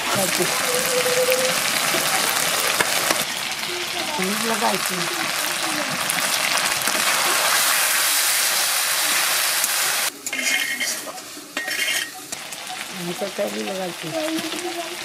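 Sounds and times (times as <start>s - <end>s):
chicken sizzling in hot oil: 0.0s - 15.0s
spatula stirring in wok: 10.2s - 12.9s.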